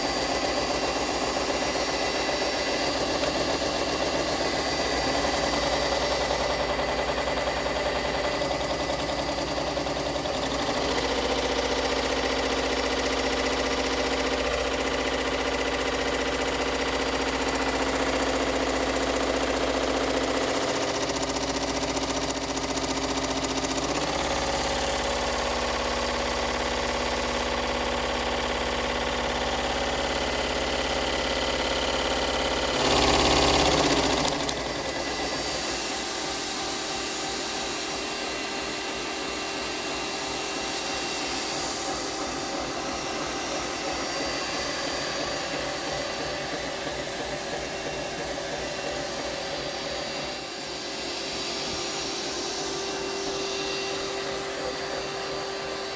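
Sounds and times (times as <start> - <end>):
scroll saw running: 0.0 - 55.9.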